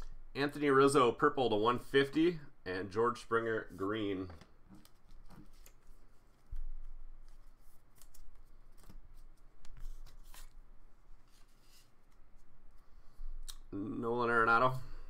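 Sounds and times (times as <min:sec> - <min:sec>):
cards scraping and flicking: 0:04.3 - 0:10.6.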